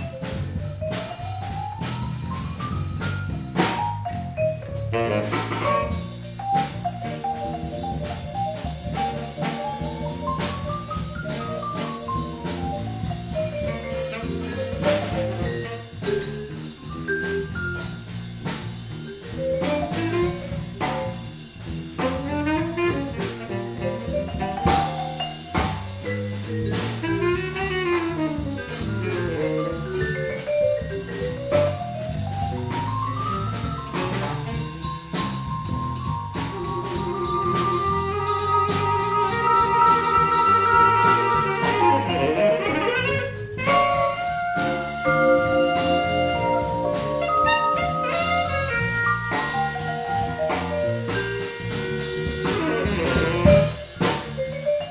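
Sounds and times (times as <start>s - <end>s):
vibraphone solo: 0.0s - 21.4s, 22.1s - 42.6s, 43.6s - 54.9s
jazz-funk band playing: 0.0s - 54.9s.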